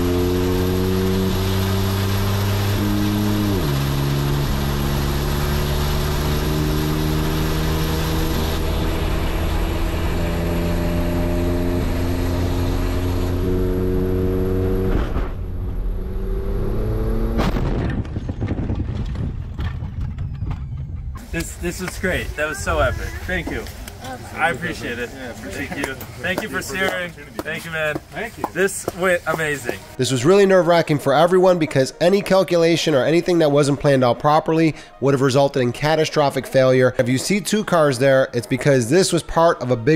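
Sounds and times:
loud crash impact: 17.4s - 19.9s
rattling and clattering: 17.7s - 21.2s.

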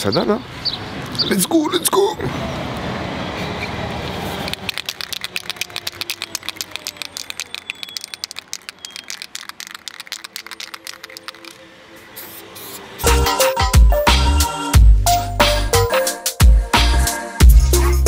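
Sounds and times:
spray can ball rattling: 4.3s - 12.8s.

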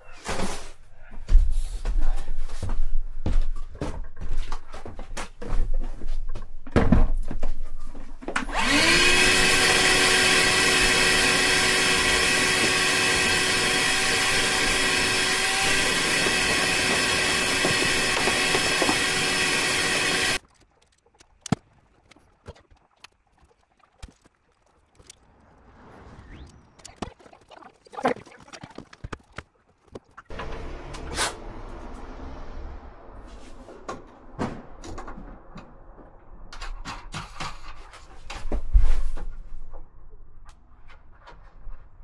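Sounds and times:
shop vacuum running: 8.4s - 20.4s.

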